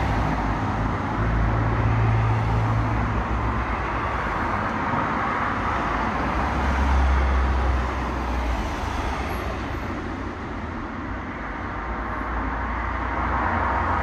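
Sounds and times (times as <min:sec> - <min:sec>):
road traffic rumble: 0:00.0 - 0:14.0.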